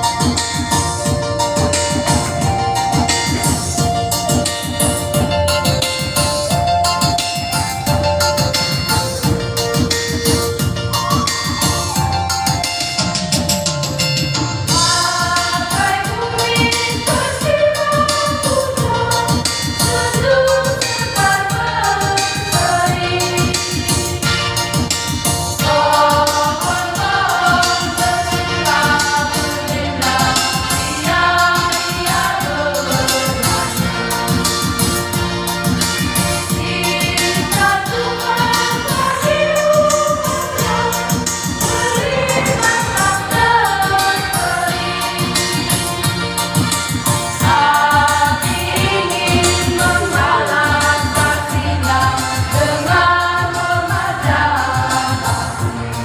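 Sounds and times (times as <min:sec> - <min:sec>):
choir singing a hymn: 0:14.7 - 0:24.8, 0:25.5 - 0:46.3, 0:47.3 - 0:56.0
steady beat: 0:25.6 - 0:55.8.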